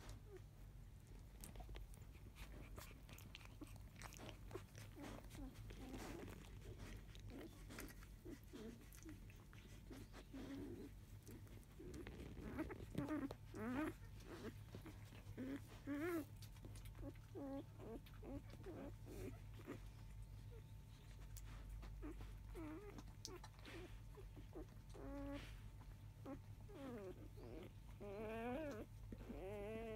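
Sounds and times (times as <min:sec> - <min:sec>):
puppy whimpering and squeaking: 0:01.4 - 0:29.9.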